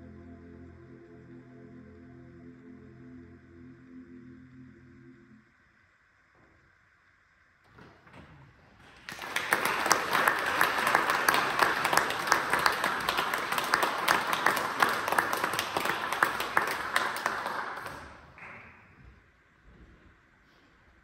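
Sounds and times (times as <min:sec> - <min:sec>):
audience applauding: 0:08.8 - 0:18.8.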